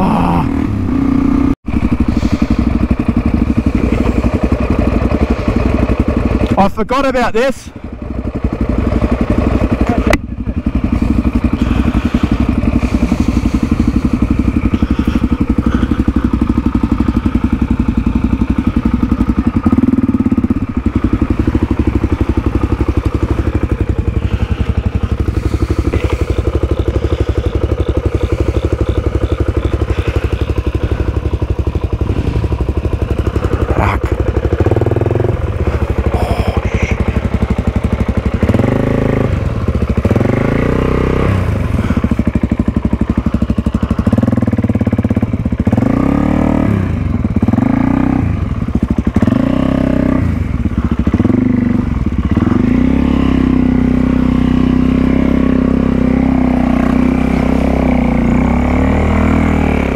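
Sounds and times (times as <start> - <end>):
motorcycle engine running: 0.0 - 59.9
thuds from rough trail: 20.2 - 31.1.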